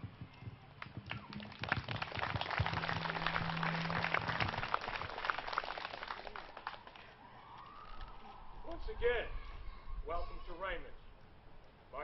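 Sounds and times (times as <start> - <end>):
audience applauding: 0.8 - 7.2.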